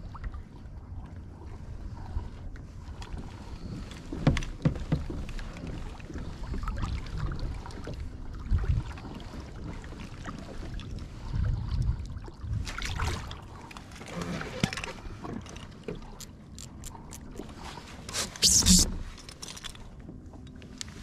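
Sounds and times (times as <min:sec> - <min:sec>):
water sloshing against hull: 0:00.0 - 0:21.0
wind buffeting microphone: 0:05.6 - 0:13.4.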